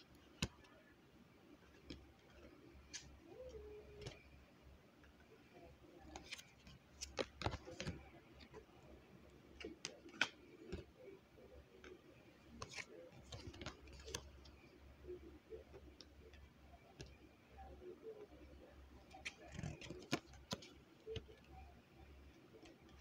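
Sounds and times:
cards clicking and tapping: 6.1s - 8.6s, 12.6s - 14.3s, 19.2s - 21.4s.

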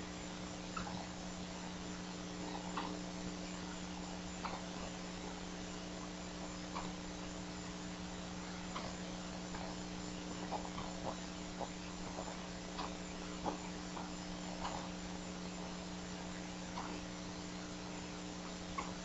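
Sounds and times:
steady electrical hum: 0.0s - 19.0s
eaglet peeping: 8.1s - 19.0s.

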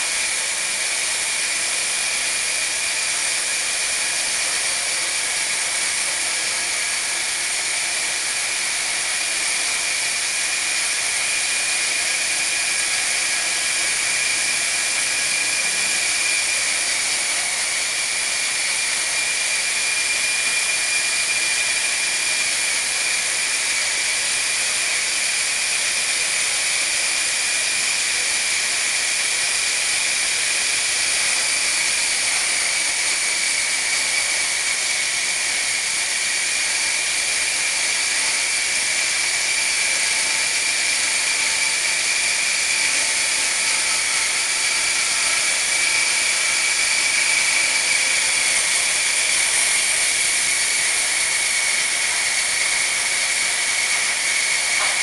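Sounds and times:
band sawmill high whine: 26.6s - 55.0s.

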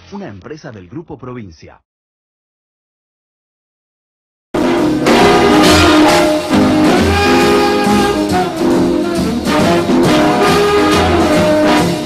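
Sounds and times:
brass television theme music: 4.6s - 12.0s.

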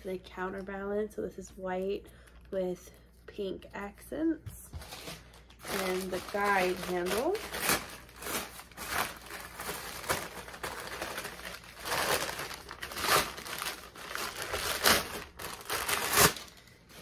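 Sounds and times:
wrapping crinkling: 4.8s - 17.0s.

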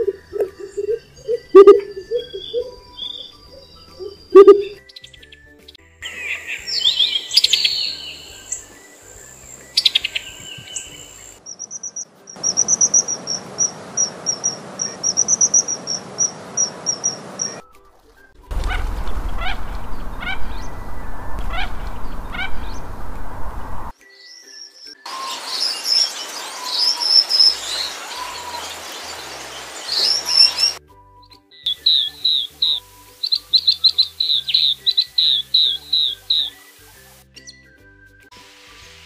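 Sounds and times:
bird chirps and sweeping notes: 0.0s - 30.8s, 31.7s - 37.8s
high thin whistled bird notes: 0.0s - 39.0s
duck short whistles: 1.5s - 2.4s
low rumble: 18.4s - 23.9s.

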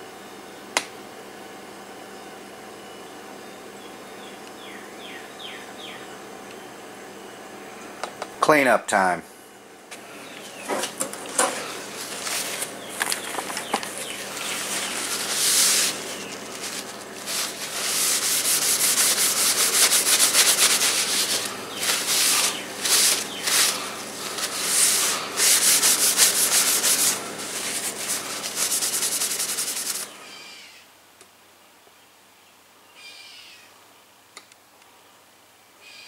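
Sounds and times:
paper towel rubbing metal bar: 10.8s - 30.1s.

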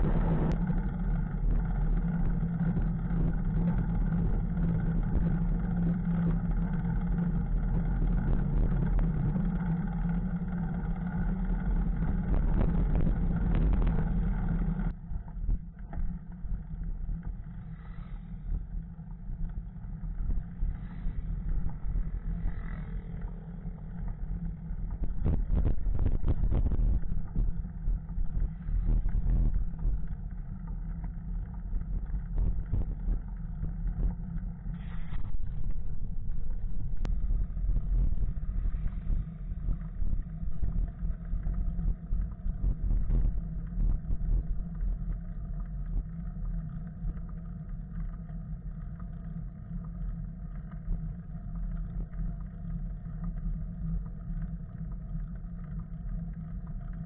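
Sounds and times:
wind buffeting microphone: 24.9s - 30.3s.

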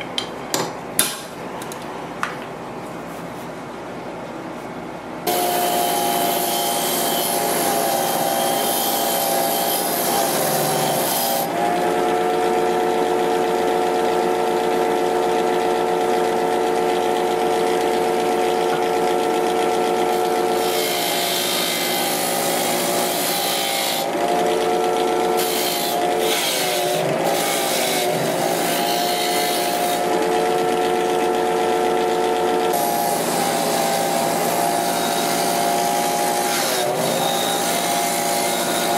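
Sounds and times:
bench grinder motor hum: 5.3s - 14.8s, 20.0s - 31.0s, 32.5s - 38.9s.

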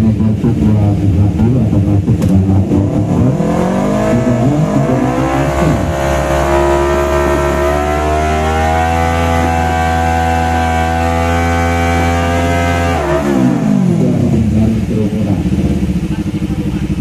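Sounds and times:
motorcycle engine revving high: 0.0s - 17.0s.

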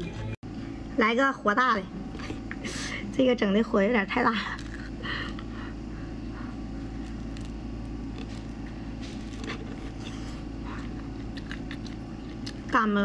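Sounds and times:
steady low hum: 0.0s - 13.0s
biting and tearing chewy sausage: 4.4s - 5.5s, 6.8s - 12.8s
mouth clicks and crackles: 10.8s - 12.7s.

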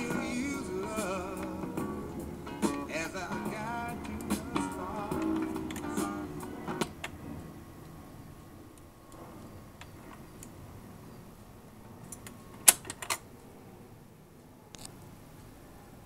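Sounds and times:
record changer mechanism running: 0.0s - 10.6s.

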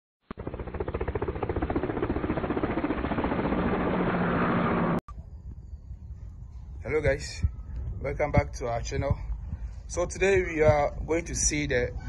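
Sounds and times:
faint outdoor background: 0.2s - 12.0s.

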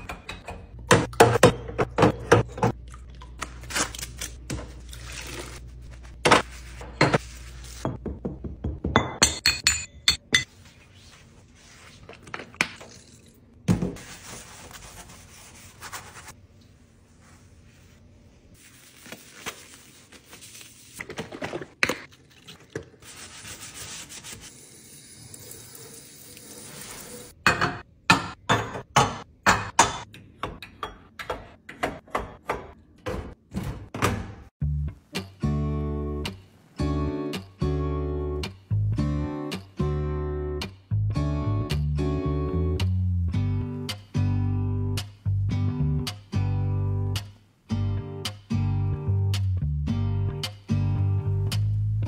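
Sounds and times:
stove grates scrubbed in sink: 23.0s - 24.6s.

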